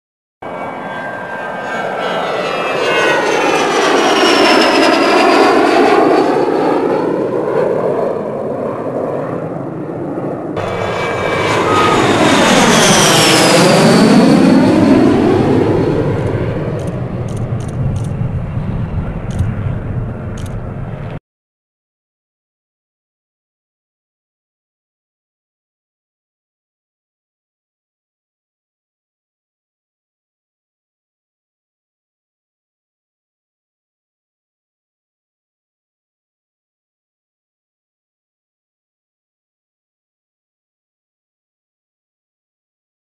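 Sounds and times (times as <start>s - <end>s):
jet passing with whine: 0.4s - 21.2s.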